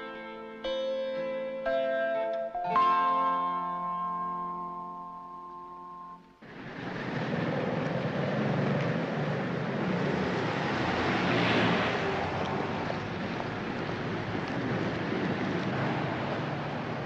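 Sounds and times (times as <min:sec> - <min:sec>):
city traffic rush: 0:06.3 - 0:17.0
vehicle passing by: 0:06.4 - 0:17.0.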